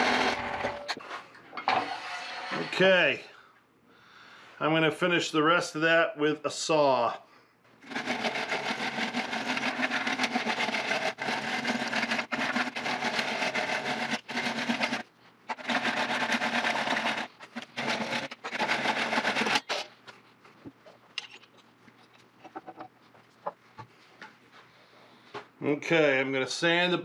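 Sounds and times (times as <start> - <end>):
hand saw cutting wood: 0.0 - 1.0, 1.6 - 2.9, 7.8 - 19.9.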